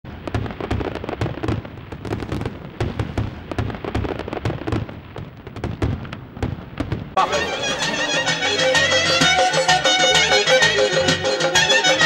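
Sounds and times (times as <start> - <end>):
fireworks bangs and crackles: 0.0 - 7.5.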